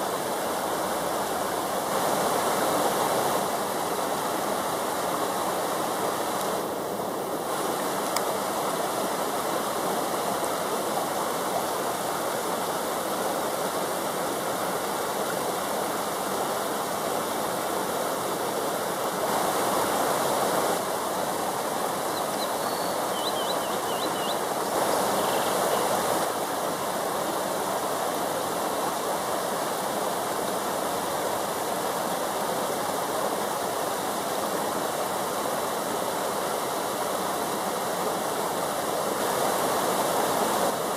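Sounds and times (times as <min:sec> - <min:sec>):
water rushing over rocks: 0:00.0 - 0:40.9
small bird chirping: 0:22.1 - 0:24.4, 0:25.2 - 0:25.9.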